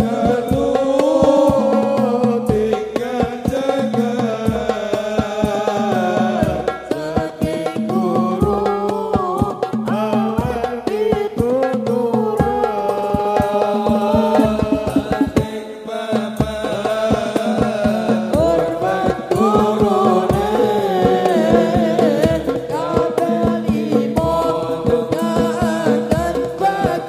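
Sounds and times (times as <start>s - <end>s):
frame drums beating: 0.0s - 27.0s
voices singing ornamented melody: 0.0s - 27.0s.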